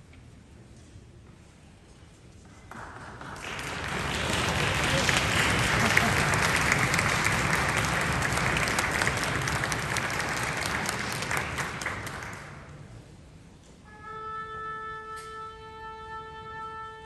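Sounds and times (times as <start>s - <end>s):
audience applauding: 2.7s - 12.8s
orchestra tuning note: 13.8s - 17.0s.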